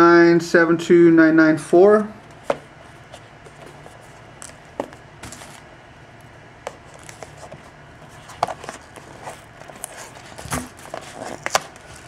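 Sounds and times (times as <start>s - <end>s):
low steady hum: 0.0s - 12.0s
clicks and rustles of small objects: 6.7s - 12.0s.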